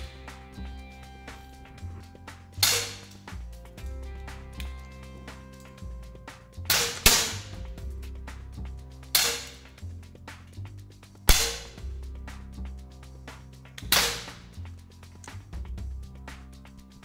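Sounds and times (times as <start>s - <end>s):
soft background music: 0.0s - 17.0s
air pistol shots: 2.6s - 3.2s, 6.7s - 7.5s, 9.2s - 9.6s, 11.3s - 11.7s, 13.9s - 14.4s.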